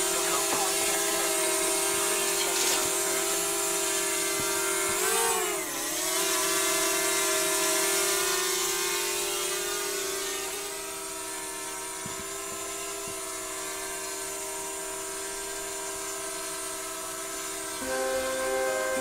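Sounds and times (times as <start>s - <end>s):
drone propellers whining: 17.0s - 19.0s.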